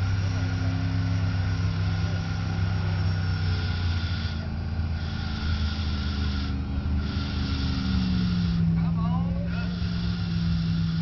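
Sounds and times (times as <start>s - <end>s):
truck engine running under load: 0.0s - 11.0s.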